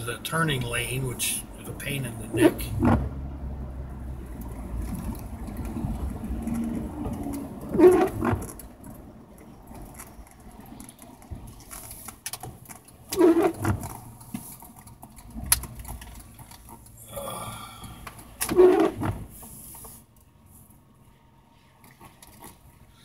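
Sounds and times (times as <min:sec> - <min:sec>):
road and engine noise: 0:00.0 - 0:23.0
windshield wipers squeaking: 0:01.6 - 0:03.4, 0:04.2 - 0:16.9, 0:18.2 - 0:20.0.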